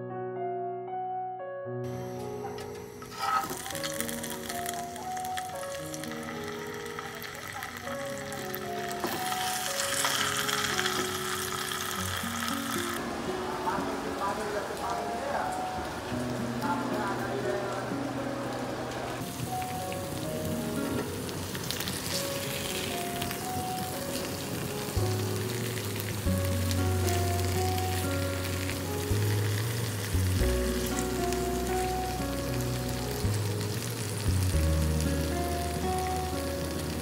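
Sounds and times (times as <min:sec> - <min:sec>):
slow background music: 0:00.0 - 0:37.0
chicken sizzling in hot oil: 0:02.0 - 0:37.0
low bass notes: 0:25.0 - 0:37.0.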